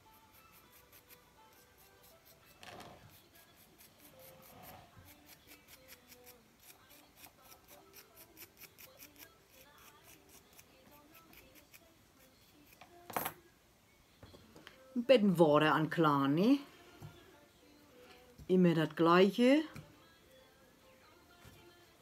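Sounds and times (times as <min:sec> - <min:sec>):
tool scratching clay: 0:00.3 - 0:12.3.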